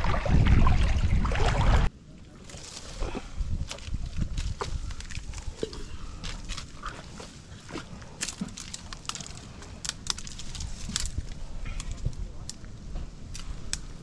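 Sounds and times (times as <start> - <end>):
sharp clicks and crackles: 8.0 - 14.0.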